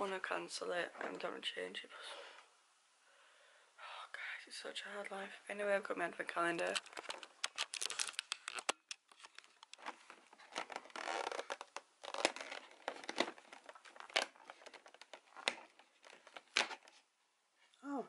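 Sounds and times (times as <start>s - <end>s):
cardboard crinkling and tearing: 6.6s - 17.0s.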